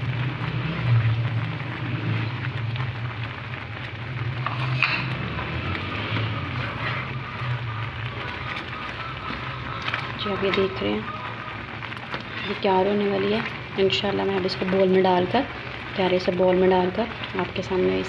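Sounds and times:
pudding bubbling and popping: 0.0s - 18.0s
spatula stirring: 3.2s - 18.0s.

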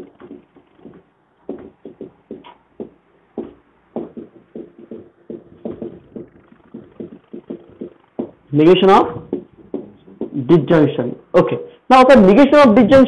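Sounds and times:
whiteboard marker squeaking: 4.0s - 10.4s.

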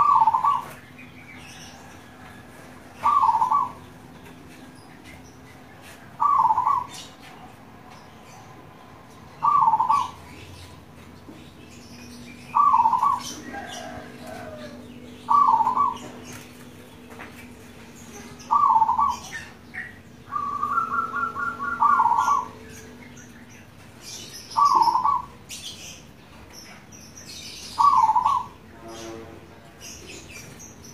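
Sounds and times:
dove cooing: 0.0s - 0.8s, 3.0s - 3.9s, 6.2s - 7.1s, 9.4s - 10.3s, 12.6s - 16.2s, 18.2s - 22.8s, 24.5s - 25.4s, 27.8s - 28.6s.

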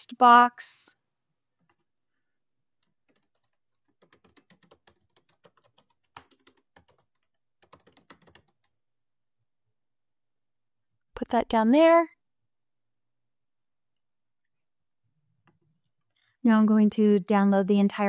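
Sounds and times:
keyboard typing: 2.8s - 8.8s.

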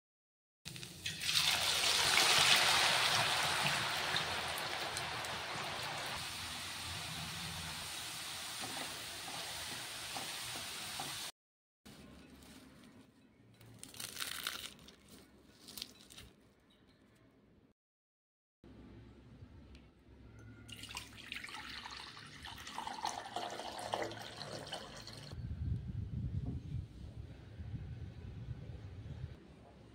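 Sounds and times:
potato sizzling in hot oil: 0.7s - 11.3s
water pouring into glass bowl: 20.7s - 25.4s.

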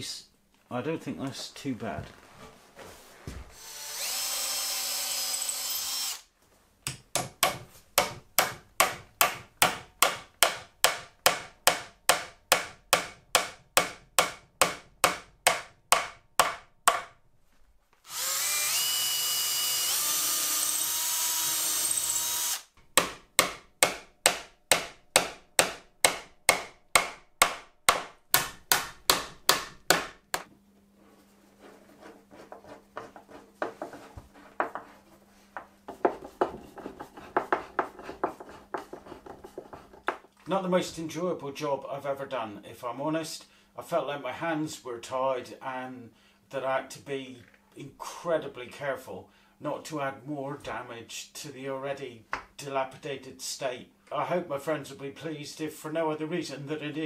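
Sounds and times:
cordless drill running: 3.6s - 6.3s, 18.0s - 22.7s.

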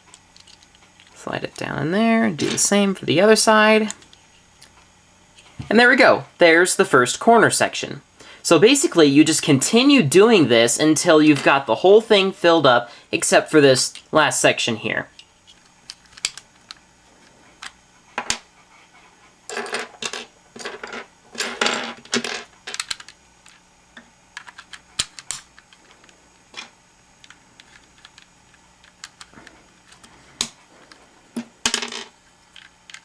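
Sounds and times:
plastic puzzle pieces clicking: 0.1s - 1.1s, 15.5s - 16.8s, 22.2s - 23.6s, 24.4s - 25.8s, 27.2s - 30.6s, 32.5s - 33.0s.

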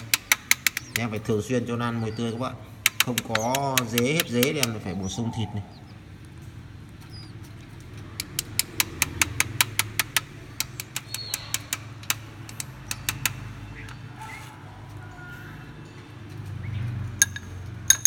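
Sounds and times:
sharp metallic tweezer clicks: 0.0s - 1.5s, 2.1s - 5.0s, 8.0s - 14.0s.

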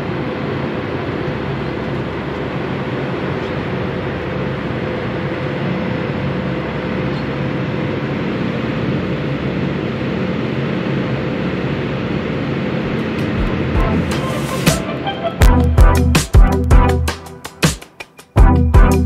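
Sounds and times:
jet engines droning: 0.0s - 17.7s
airflow around fuselage: 12.2s - 17.9s.

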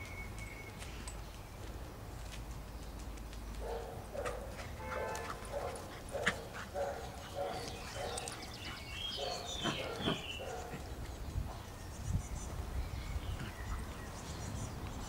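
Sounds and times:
dogs barking: 3.6s - 11.0s.

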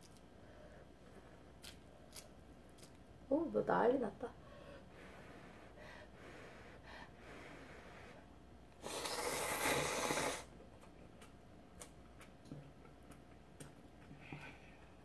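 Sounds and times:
person slurping noodles: 8.8s - 10.5s.

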